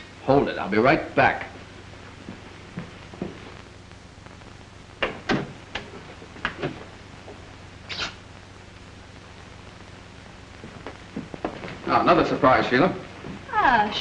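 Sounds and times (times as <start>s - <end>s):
film soundtrack hiss and hum: 0.0s - 14.0s.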